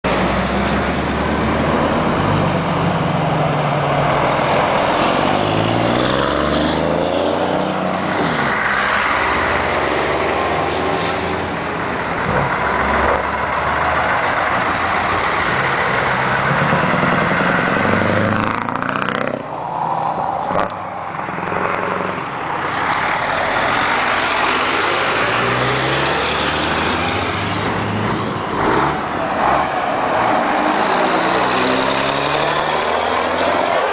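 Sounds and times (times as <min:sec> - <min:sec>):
truck diesel engine accelerating: 0:00.0 - 0:33.9.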